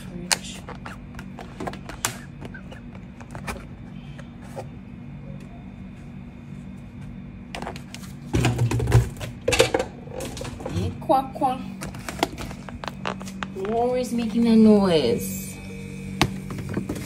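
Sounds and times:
steady low hum: 0.0 - 17.0
food containers clicking and knocking: 8.4 - 10.8.

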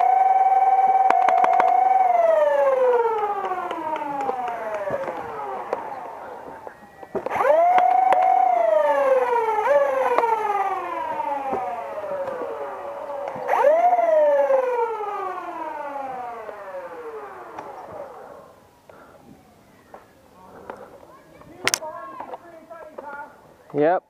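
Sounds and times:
flywheel motors whining: 0.0 - 19.0.

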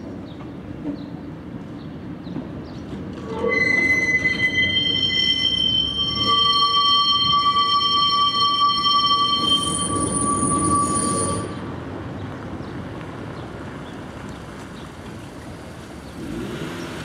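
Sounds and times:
wheels rumbling on rails: 0.0 - 17.0
tram wheels squealing on track: 3.1 - 11.8.

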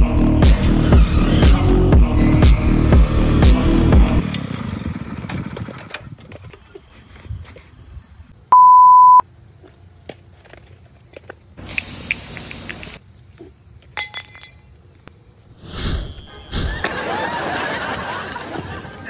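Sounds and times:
single-tone beep: 8.5 - 9.2
bright hissing burst: 11.6 - 13.0.

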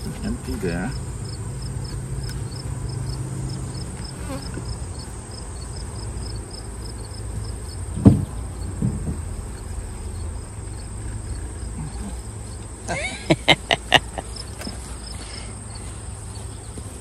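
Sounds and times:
faint high insect chirping: 0.0 - 17.0
honey bees buzzing: 0.0 - 17.0
wooden hive boxes knocking: 7.4 - 9.5.

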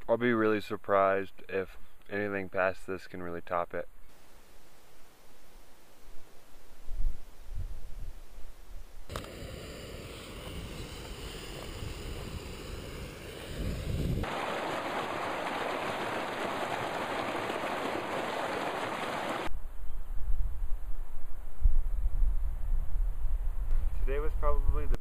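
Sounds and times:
wind rumbling on microphone: 6.0 - 25.0
stream water rushing: 13.2 - 19.5.

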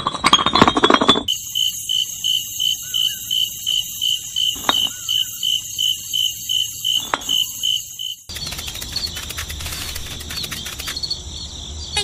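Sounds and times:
chirping ambience with rapid ticks: 1.2 - 12.0
steady high tone: 1.3 - 8.3
pulsing high chirp: 1.3 - 11.2
sharp clicks: 6.2 - 11.2.

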